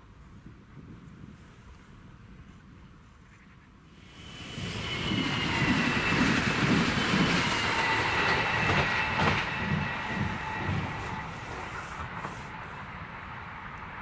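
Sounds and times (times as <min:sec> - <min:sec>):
train rumble and wheel noise: 0:00.0 - 0:14.0
high train whine: 0:03.8 - 0:14.0.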